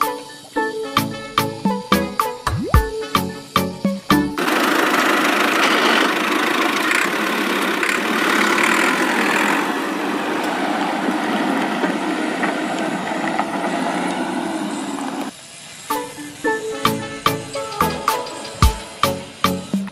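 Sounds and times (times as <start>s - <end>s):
electric gear motor whirring: 4.4s - 15.3s.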